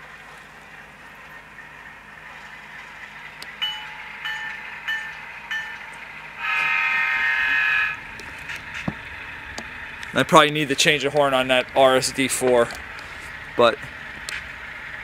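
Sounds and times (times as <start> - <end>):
faint diesel engine: 0.0 - 15.0
locomotive bell ringing: 1.1 - 13.8
locomotive horn chord blast: 3.6 - 10.0.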